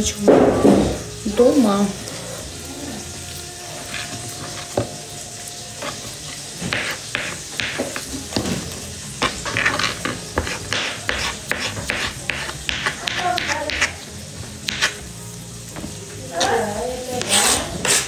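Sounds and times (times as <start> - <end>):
knife chopping on a board: 6.6 - 8.6, 9.2 - 14.0, 14.7 - 15.0, 17.2 - 18.0.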